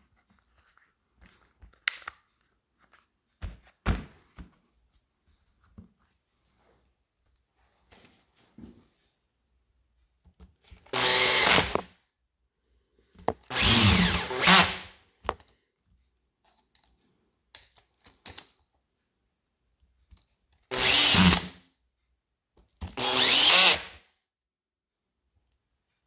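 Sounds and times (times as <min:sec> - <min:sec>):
electric screwdriver motor running: 0:10.9 - 0:11.8, 0:13.5 - 0:14.8, 0:20.7 - 0:21.5, 0:23.0 - 0:24.0.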